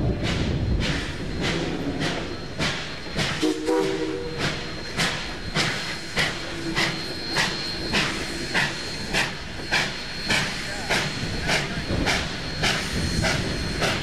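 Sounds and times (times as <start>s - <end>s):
steam locomotive chuffing: 0.0s - 14.0s
steam whistle blast: 3.4s - 4.6s.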